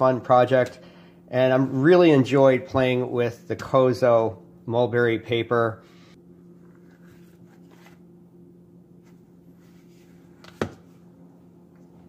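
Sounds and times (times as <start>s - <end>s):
book pages rustling: 6.6s - 8.1s.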